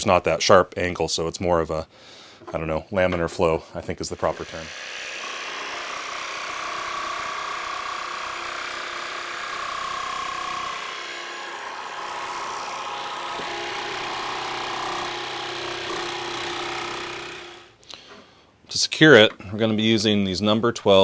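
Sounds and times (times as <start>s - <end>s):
jigsaw cutting plywood: 3.9s - 17.8s.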